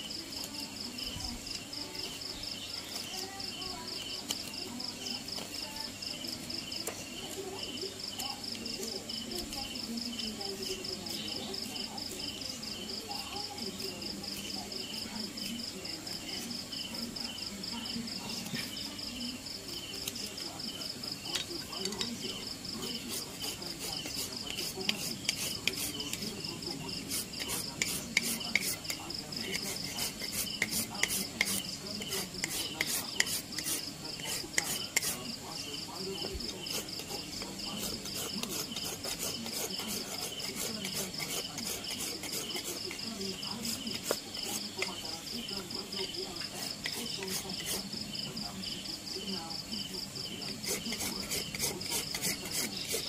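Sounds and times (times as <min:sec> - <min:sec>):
insects trilling: 0:00.0 - 0:53.0
hand tool scraping wood: 0:21.8 - 0:35.3, 0:36.2 - 0:45.0, 0:46.4 - 0:48.0, 0:50.4 - 0:53.0.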